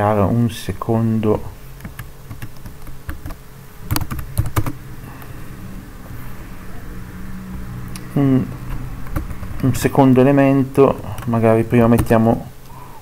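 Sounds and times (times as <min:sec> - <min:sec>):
low hum: 0:00.0 - 0:13.0
computer keyboard typing: 0:01.8 - 0:04.8, 0:08.7 - 0:09.7, 0:11.0 - 0:12.2.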